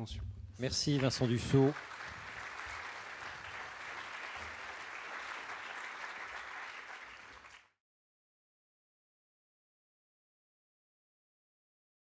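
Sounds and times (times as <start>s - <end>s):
audience applauding: 0.8s - 7.8s.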